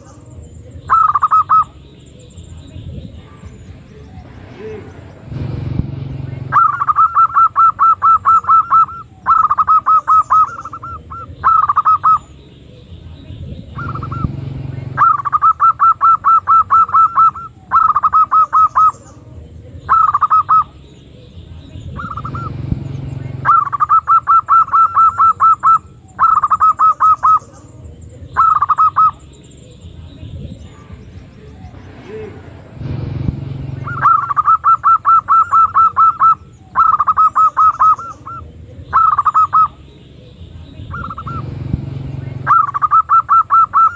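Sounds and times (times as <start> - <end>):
dove calling in quick hooked notes: 6.5 - 12.3, 13.8 - 19.1, 23.4 - 27.5, 28.4 - 29.2, 33.8 - 39.8, 42.4 - 43.9.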